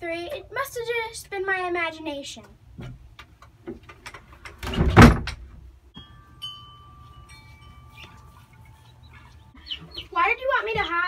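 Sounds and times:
wooden door banging shut: 0:04.4 - 0:05.6.

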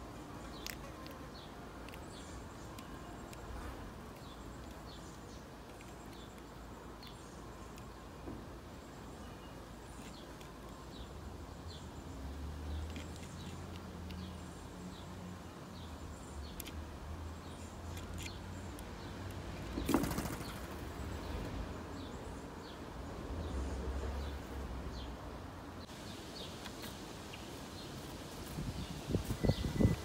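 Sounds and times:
bird wings flapping: 0:19.8 - 0:20.9
faint high bird chirps: 0:29.2 - 0:30.0.

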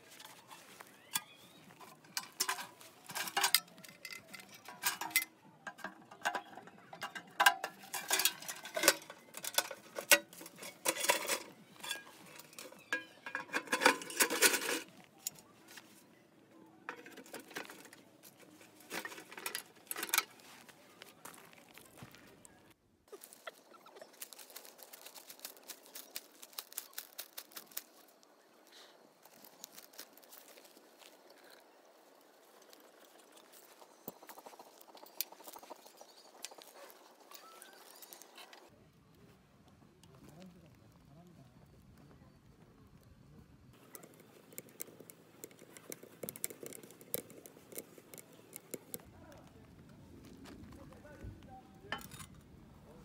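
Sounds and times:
crisp clicks and crackles: 0:16.8 - 0:38.7, 0:43.7 - 0:52.2
wood fire crackling and popping: 0:43.8 - 0:49.5.

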